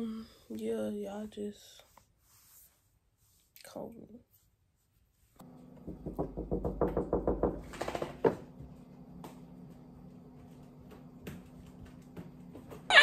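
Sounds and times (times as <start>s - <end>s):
faint steady hum: 0.0s - 13.0s
fist knocking on door: 5.8s - 8.4s.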